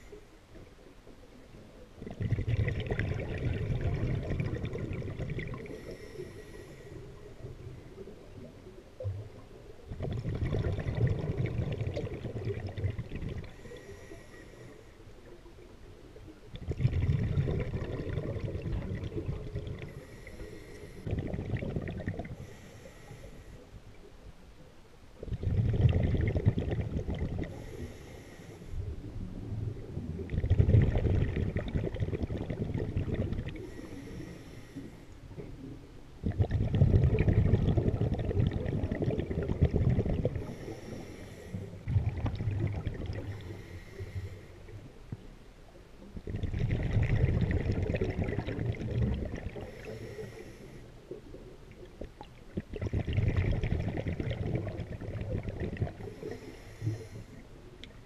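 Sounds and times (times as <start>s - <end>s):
exhaled bubbles gushing underwater: 0.6s - 6.1s, 7.0s - 14.2s, 15.3s - 22.6s, 25.2s - 27.8s, 28.8s - 34.1s, 35.3s - 58.0s
regulator inhalation hiss: 40.4s - 41.8s, 56.1s - 57.4s.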